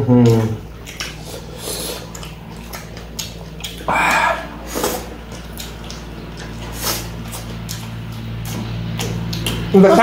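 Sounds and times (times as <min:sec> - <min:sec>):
chewing and lip noises: 0:00.0 - 0:10.0
steady low hum: 0:00.0 - 0:10.0
breathy sound: 0:03.9 - 0:05.1.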